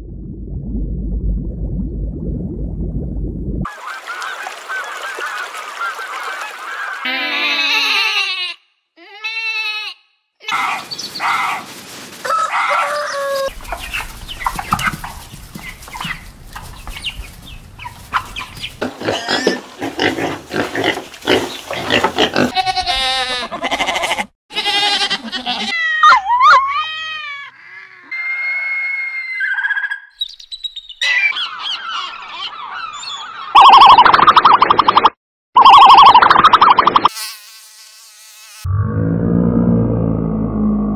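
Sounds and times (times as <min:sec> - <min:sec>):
animal calls: 0:10.5 - 0:19.5, 0:31.0 - 0:35.0
calls rising and falling in pitch: 0:31.0 - 0:37.1.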